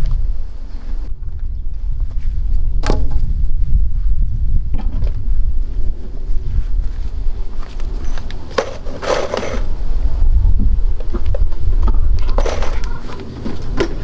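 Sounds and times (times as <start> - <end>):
wind rumbling on microphone: 0.0 - 14.0
small metal pieces clinking: 8.5 - 9.7.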